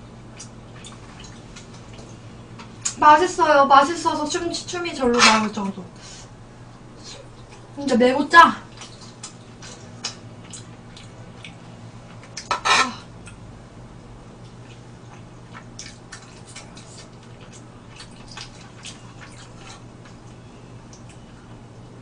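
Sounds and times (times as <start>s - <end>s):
steady low hum: 0.0s - 22.0s
person chewing: 0.3s - 3.0s, 8.7s - 13.4s, 14.4s - 21.6s
wet mouth clicks and smacks: 8.8s - 11.6s, 14.7s - 19.5s.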